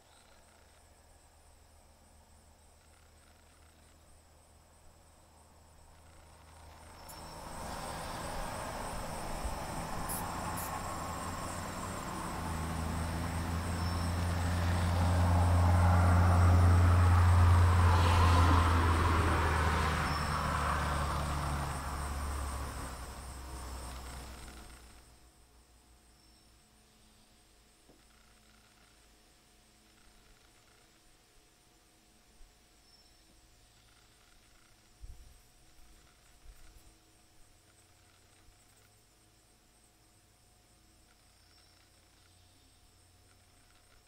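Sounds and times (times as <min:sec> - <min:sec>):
vehicle passing: 0:05.9 - 0:25.0.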